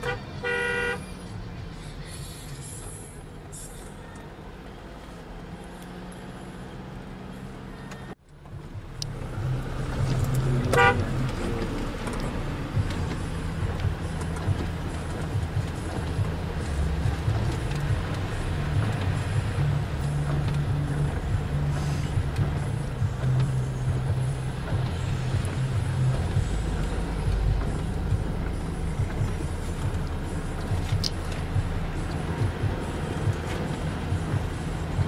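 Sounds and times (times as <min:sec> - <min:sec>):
vehicle horn toot: 0:00.0 - 0:01.2, 0:10.6 - 0:11.4
car engine and road noise: 0:00.0 - 0:35.0.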